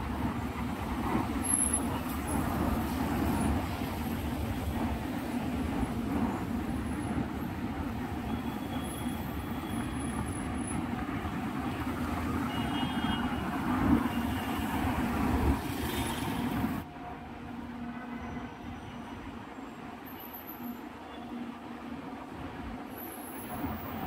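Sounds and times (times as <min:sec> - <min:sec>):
road traffic rumble: 0:00.0 - 0:18.2.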